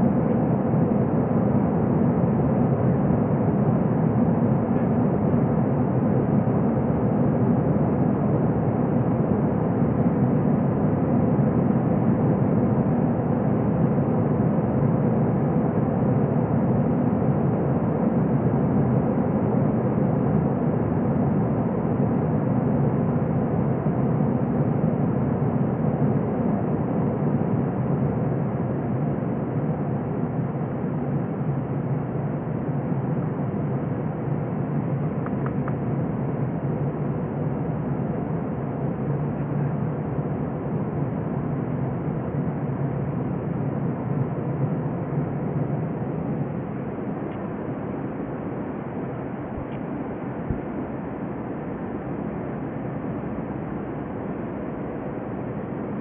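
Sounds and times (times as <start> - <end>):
jet engine drone: 0.0 - 56.0.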